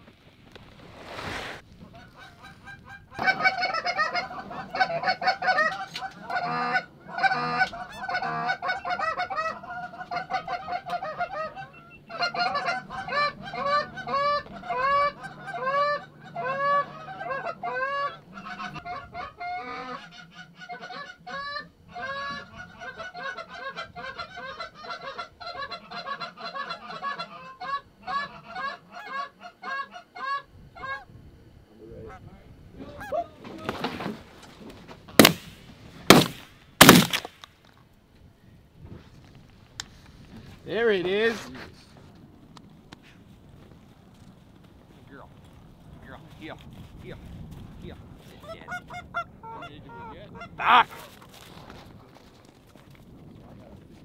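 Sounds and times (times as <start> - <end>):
goose honking and clucking: 1.8 - 31.1, 32.0 - 33.8, 48.4 - 51.5.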